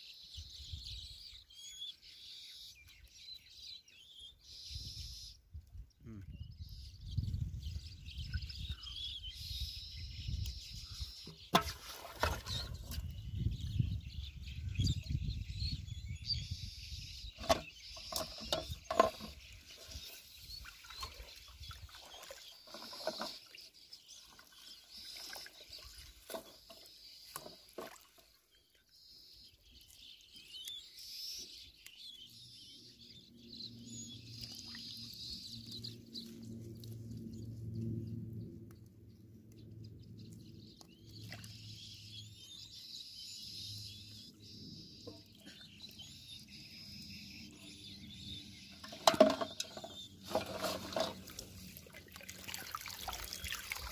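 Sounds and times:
birds chirping: 0.0 - 53.9
water splashing and sloshing: 11.2 - 13.2, 17.4 - 28.9, 34.2 - 38.0, 40.3 - 41.7, 48.8 - 53.9.

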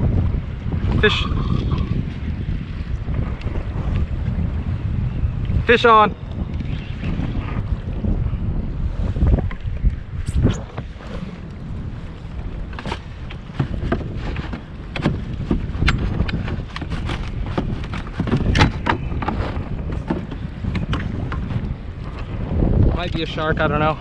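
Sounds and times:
wind buffeting microphone: 0.0 - 24.0
fishing gear clicking and knocking: 12.7 - 21.4.

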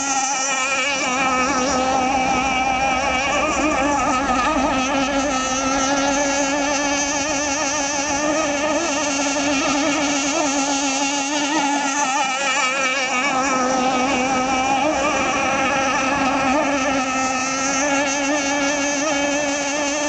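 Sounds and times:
high-pitched two-stroke engine buzz: 0.0 - 20.0.

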